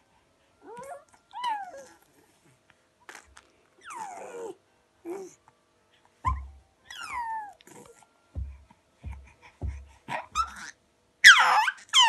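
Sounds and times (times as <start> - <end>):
baby squealing: 6.3 - 7.6, 10.1 - 12.0
low bumps: 8.4 - 10.5.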